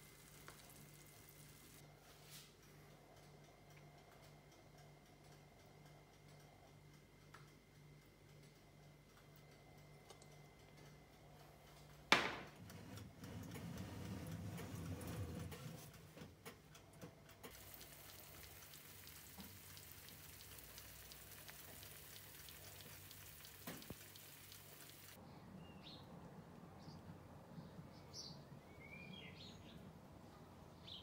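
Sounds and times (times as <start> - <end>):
food sizzling in oven: 0.0 - 1.8, 17.5 - 25.2
oven hum: 0.0 - 25.2.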